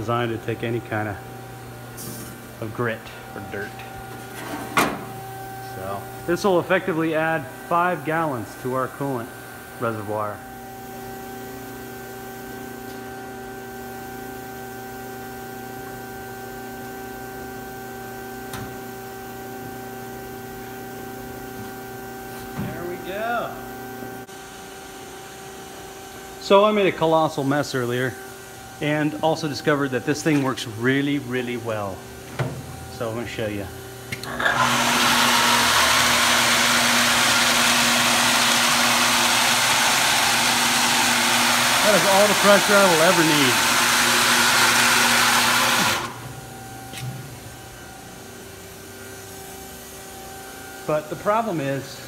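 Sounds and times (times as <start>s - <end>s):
electrical hum: 0.0s - 52.0s
pump motor hum: 33.8s - 47.1s.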